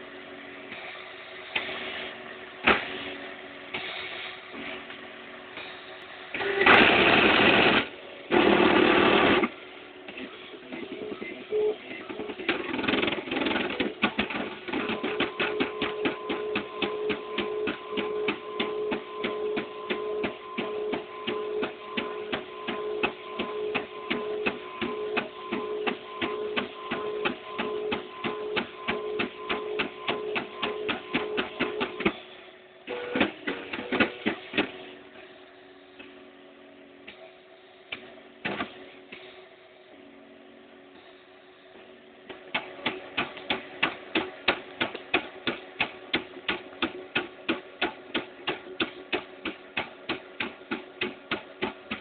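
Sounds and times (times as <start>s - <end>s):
stepper motors whining: 0.0s - 47.8s
printer ticking: 10.6s - 32.3s, 32.9s - 34.9s, 42.3s - 52.0s.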